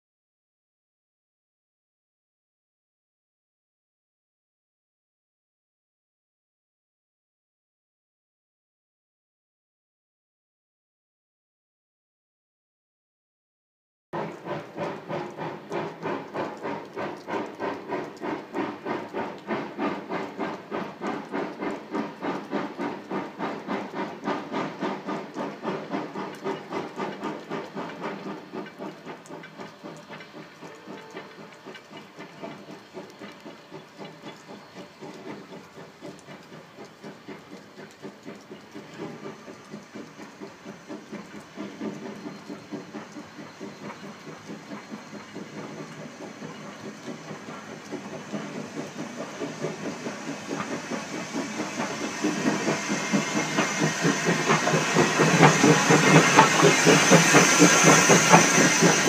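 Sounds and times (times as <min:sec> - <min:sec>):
steam hissing: 0:14.2 - 0:59.0
steam locomotive chuffing: 0:14.2 - 0:59.0.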